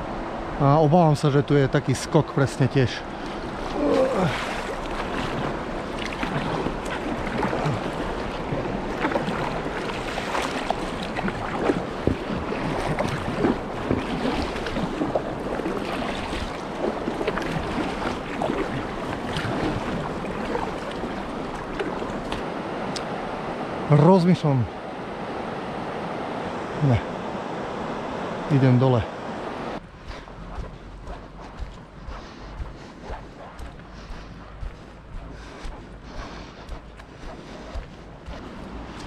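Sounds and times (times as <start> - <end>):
river water rushing and splashing: 0.0 - 39.0.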